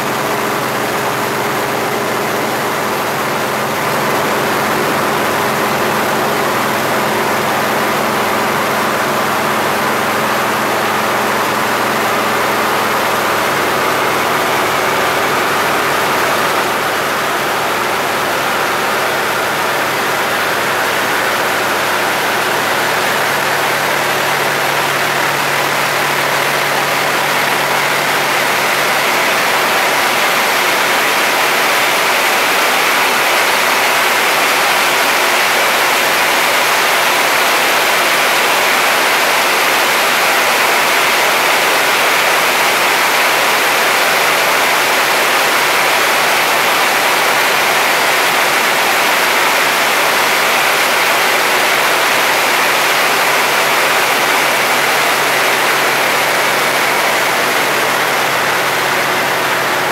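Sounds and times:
radial aircraft engine running: 0.0 - 33.0.

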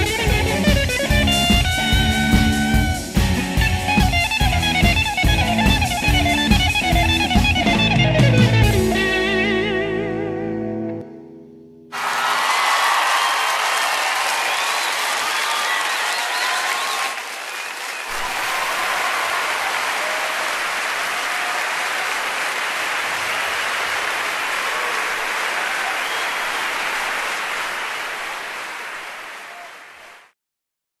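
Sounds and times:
audience applauding: 11.9 - 30.3.

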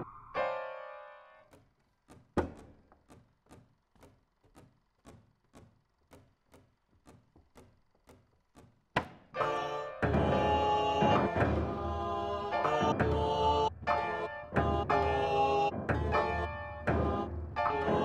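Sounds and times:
soft evenly spaced clicks: 1.5 - 9.0.

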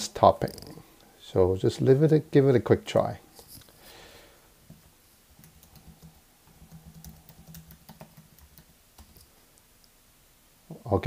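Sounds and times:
typing on computer keyboard: 5.4 - 9.3.

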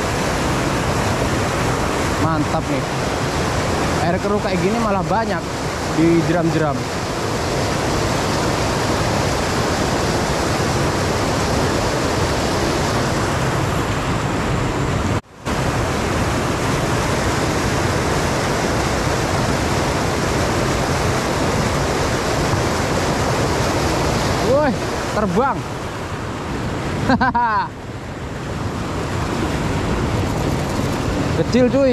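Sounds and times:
river rapids over rocks: 0.0 - 14.7, 15.4 - 26.8, 27.8 - 31.9.

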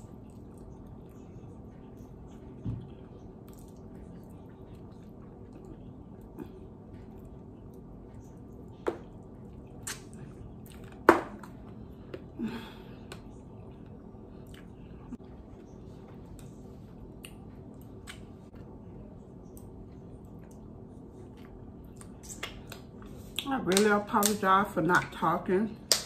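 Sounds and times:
person chewing wetly: 0.0 - 12.3, 13.1 - 15.7, 19.5 - 23.5
faint hum: 0.0 - 26.0
lip smacks and clicks: 9.7 - 10.8, 21.4 - 24.4.

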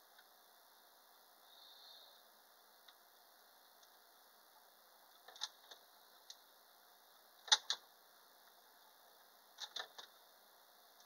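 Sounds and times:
faint background hiss: 0.0 - 11.0.

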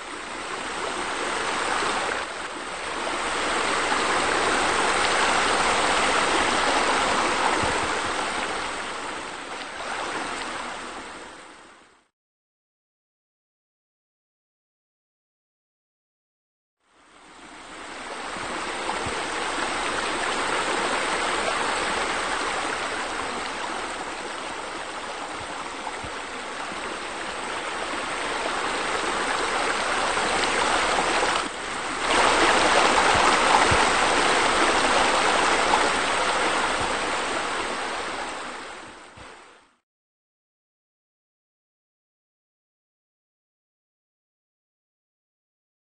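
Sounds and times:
flowing splashing water: 0.0 - 11.4, 17.6 - 39.5.

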